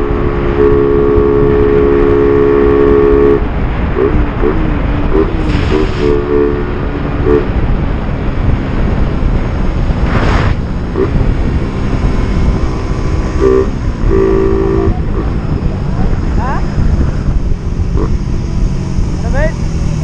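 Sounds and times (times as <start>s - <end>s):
horn blasts: 0.0s - 7.8s, 13.1s - 15.6s
motorcycle engine: 0.0s - 20.0s
wind rushing over microphone: 0.0s - 20.0s.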